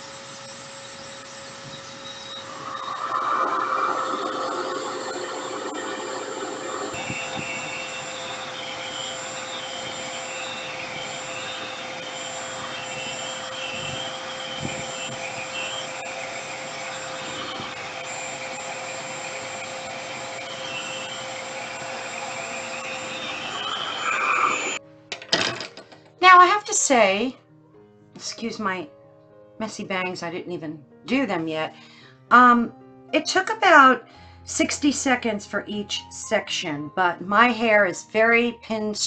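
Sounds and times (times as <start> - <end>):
hair dryer rushing air: 0.0 - 24.8.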